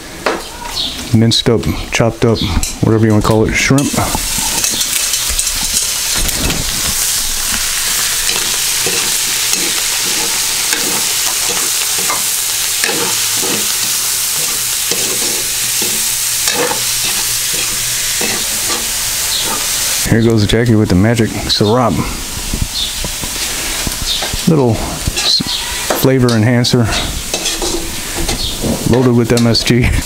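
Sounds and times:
food sizzling in oil: 3.6 - 20.5, 21.2 - 29.8
metal spatula scraping pan: 3.7 - 20.0, 25.1 - 29.6.

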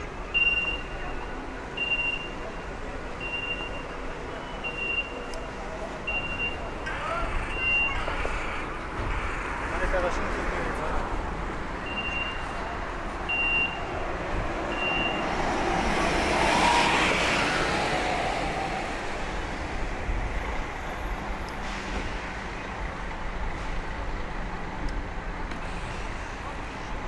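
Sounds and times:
cars and trucks running: 0.0 - 27.0
vehicle passing close: 14.2 - 19.7
high electronic beeps: 14.7 - 15.3.

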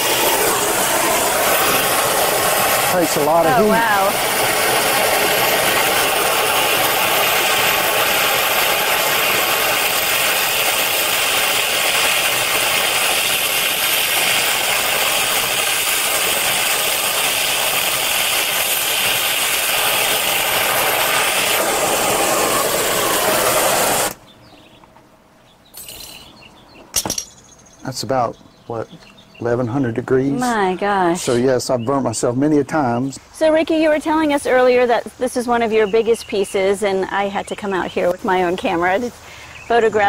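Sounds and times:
torch flame hissing: 0.0 - 24.2.

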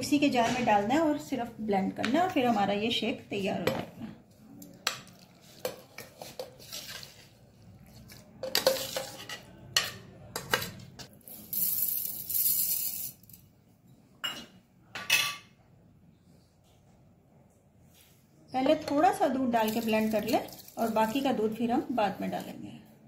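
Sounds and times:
sugar pouring into steel jar: 11.2 - 13.2, 19.6 - 21.4.

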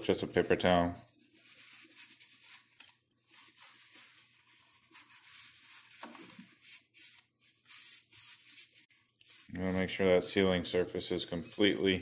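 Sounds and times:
paper towel scuffing on metal: 3.3 - 12.0.

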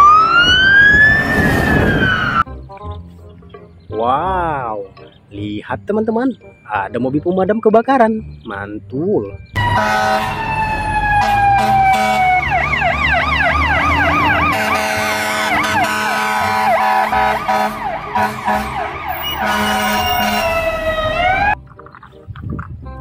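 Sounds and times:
electronic siren wailing and yelping: 0.0 - 2.4, 9.6 - 21.6
truck engine rumbling: 8.2 - 23.0.

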